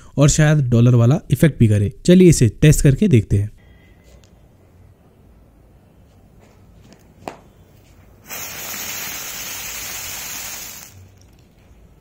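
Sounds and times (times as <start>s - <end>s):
ground spinner firework hissing: 8.2s - 11.3s.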